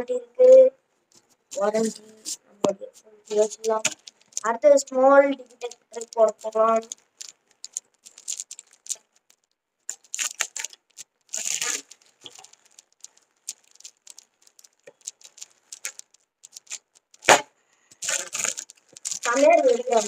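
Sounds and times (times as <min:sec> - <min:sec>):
packaging tearing: 0:03.3 - 0:04.6, 0:05.4 - 0:20.0
packaging rustling and crinkling: 0:03.3 - 0:20.0.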